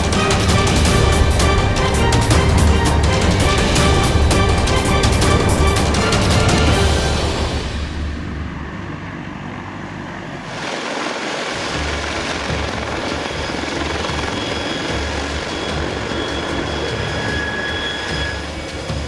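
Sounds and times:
helicopter rotors pulsing: 0.0 - 19.0
helicopter turbine whine: 0.0 - 19.0.

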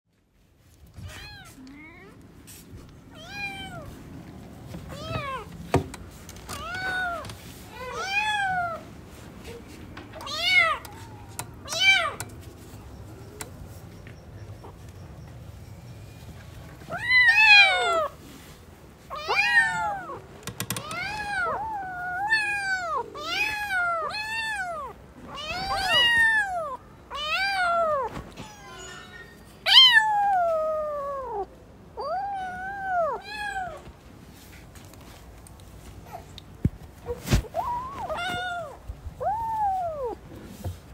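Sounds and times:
cat meowing: 20.8 - 33.9.

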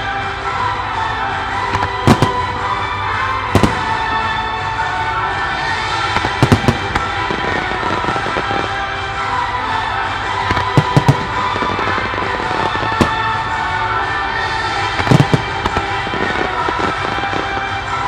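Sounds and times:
music: 0.0 - 18.0
firework shells bursting: 1.7 - 4.5, 5.7 - 9.0, 10.4 - 13.7, 14.8 - 17.7.

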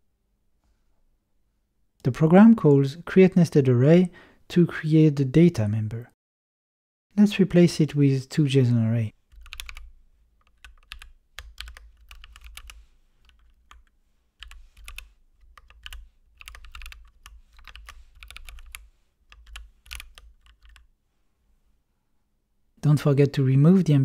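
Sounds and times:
typing on keyboard: 9.3 - 20.9.

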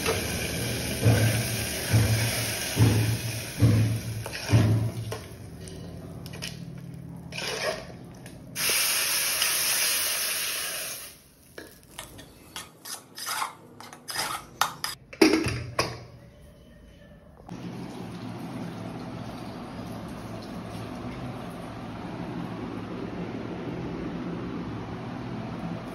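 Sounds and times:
spoon scraping inside pot: 7.3 - 8.0, 12.0 - 15.0.

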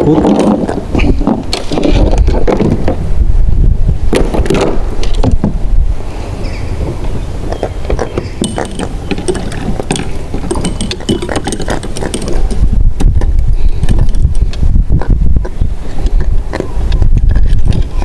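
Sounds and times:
wind rumble on microphone: 0.0 - 18.0
fishing line and fish rattling: 8.0 - 12.7.

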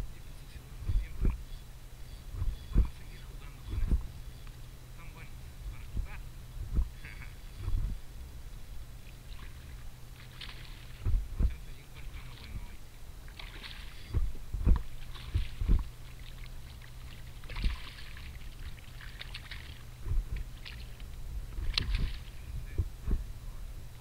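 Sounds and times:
low rumble: 0.0 - 24.0
sharp low thumps: 0.8 - 1.5, 2.2 - 4.3, 5.6 - 8.3, 11.0 - 11.7, 14.0 - 15.9, 19.9 - 23.6
water lapping against kayak: 2.2 - 23.6.

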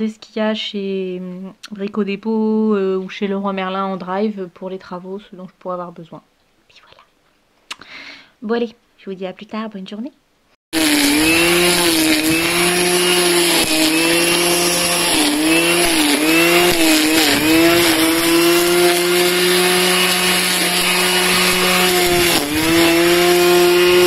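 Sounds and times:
string trimmer cutting grass: 10.8 - 24.0.

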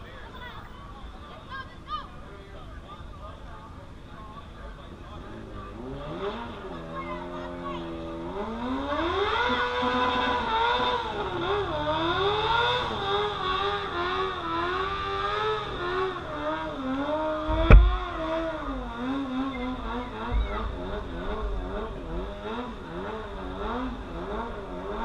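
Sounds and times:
motorcycle engine revving: 3.5 - 25.0
sharp knock: 17.5 - 18.1.

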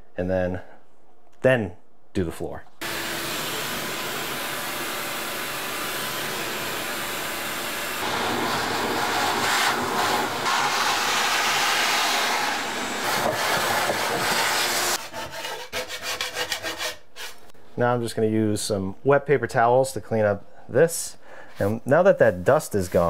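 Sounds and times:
shop vac running: 2.8 - 15.0.

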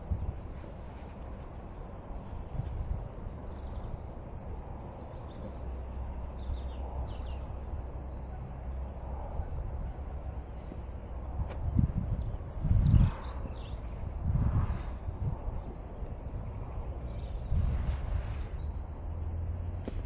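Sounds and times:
bird chirps: 5.0 - 9.1, 12.0 - 14.4, 16.4 - 18.8.

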